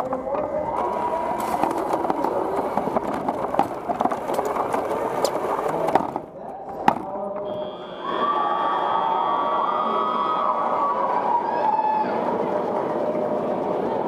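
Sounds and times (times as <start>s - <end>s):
robot rolling rumble and rattling: 0.0s - 7.3s
sharp clicks and knocks: 0.0s - 7.5s.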